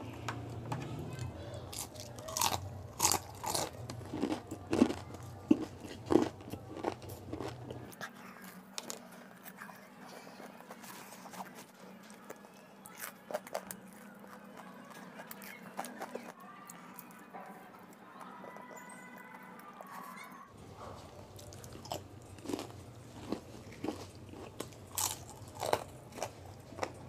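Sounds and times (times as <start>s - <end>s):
chewing: 0.2s - 27.0s
crunchy bites into pastry: 1.7s - 7.6s, 21.4s - 27.0s.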